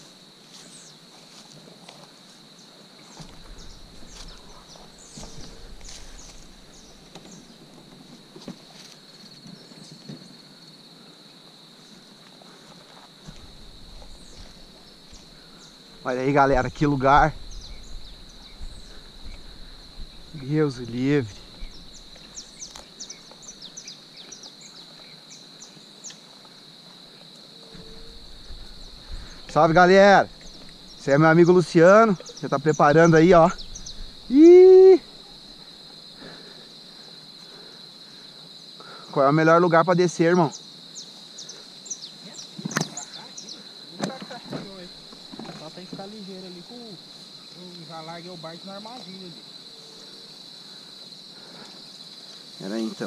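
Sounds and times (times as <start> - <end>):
footsteps through brush: 0.0 - 10.0, 11.9 - 15.9, 16.5 - 34.4
high-pitched insect drone: 0.0 - 53.0.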